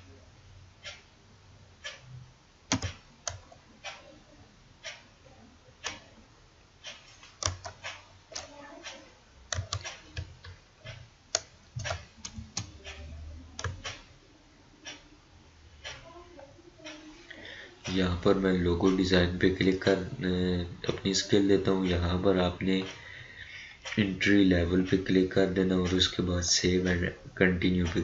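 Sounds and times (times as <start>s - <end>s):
keyboard keys tapping: 2.7s - 4.1s, 7.2s - 14.1s.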